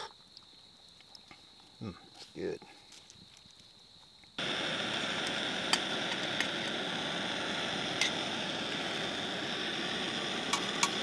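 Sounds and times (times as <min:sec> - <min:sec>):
fire crackling pops: 0:03.6 - 0:11.0
wood fire hissing: 0:04.4 - 0:11.0.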